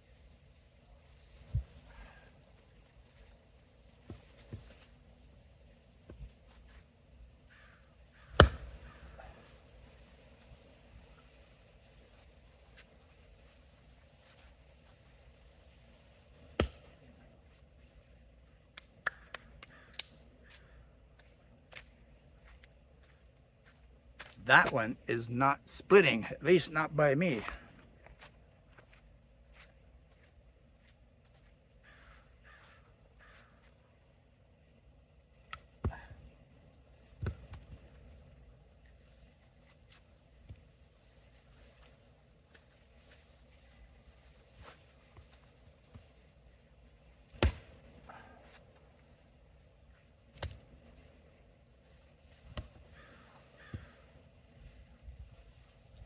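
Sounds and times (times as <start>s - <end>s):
axe chopping a log: 8.3s - 8.8s, 16.6s - 16.8s, 47.3s - 47.7s.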